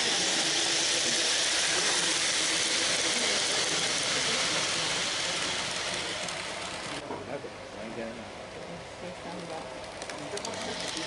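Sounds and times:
model train rushing hiss: 0.0s - 7.0s, 10.5s - 11.0s.

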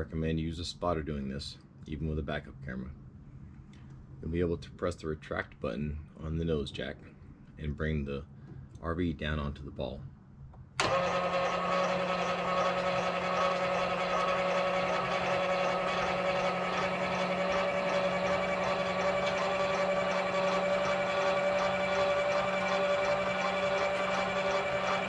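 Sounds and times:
electric jack motor whining: 10.8s - 25.0s.

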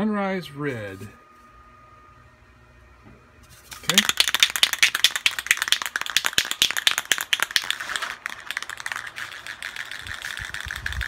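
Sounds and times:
spray paint can rattling: 3.6s - 11.0s.

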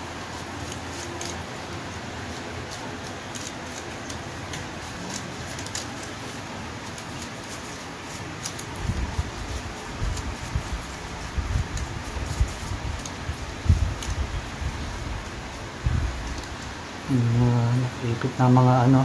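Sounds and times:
brush scrubbing metal: 0.0s - 17.0s
steady background hiss: 0.0s - 19.0s.

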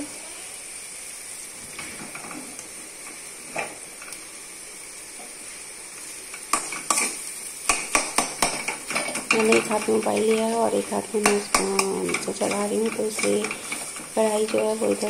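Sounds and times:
food sizzling in a pan: 0.0s - 15.0s
spoon scraping a pan: 6.3s - 15.0s
spoon clattering against pan: 7.7s - 15.0s.

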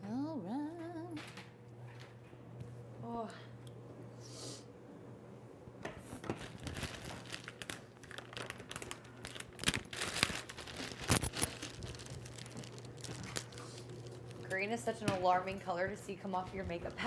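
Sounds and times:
crinkling and rustling: 5.9s - 15.4s.

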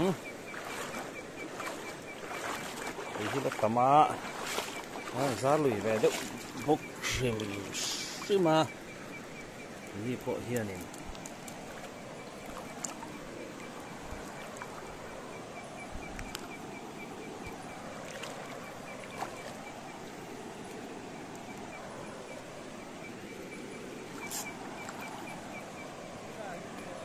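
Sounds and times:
river water rushing: 0.0s - 27.0s.

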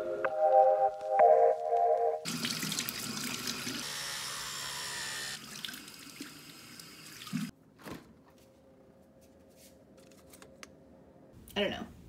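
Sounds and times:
faucet water running into sink: 2.3s - 3.8s, 5.3s - 7.5s.

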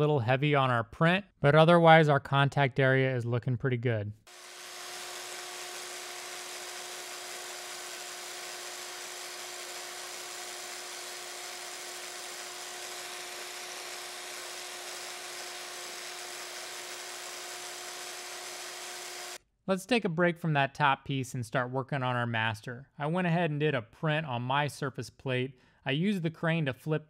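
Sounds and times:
electric power scraper whirring: 4.3s - 19.4s.

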